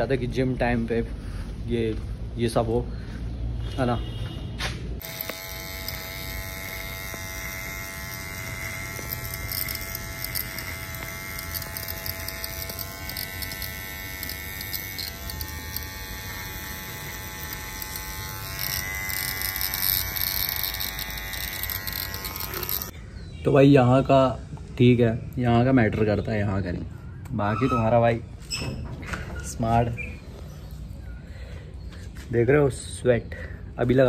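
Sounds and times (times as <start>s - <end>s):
electric beard trimmer buzzing: 5.0s - 23.0s.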